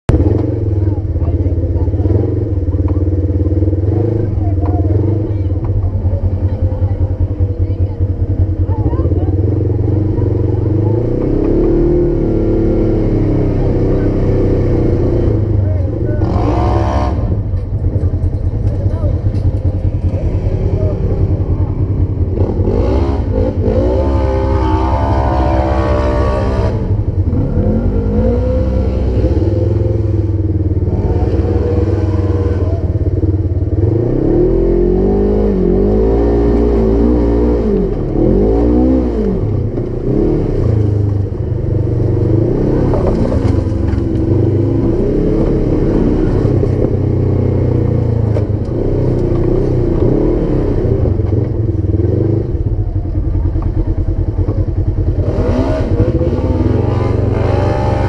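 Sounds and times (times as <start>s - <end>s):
engine revving hard: 16.2s - 17.5s, 22.2s - 33.1s, 33.7s - 52.7s, 55.0s - 58.0s.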